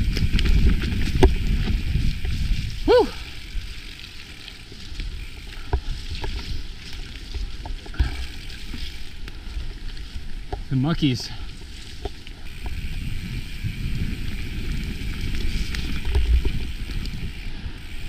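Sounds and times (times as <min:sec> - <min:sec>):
bike knocks and rattles: 0:00.0 - 0:02.4, 0:05.3 - 0:09.0, 0:14.3 - 0:17.4
bike tyres rumbling on dirt: 0:00.0 - 0:18.0.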